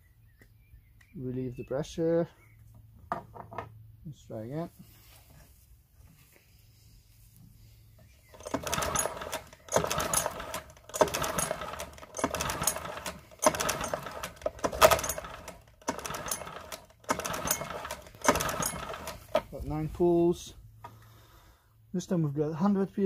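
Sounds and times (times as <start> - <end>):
outboard recoil starter pulls: 8.3 - 19.6.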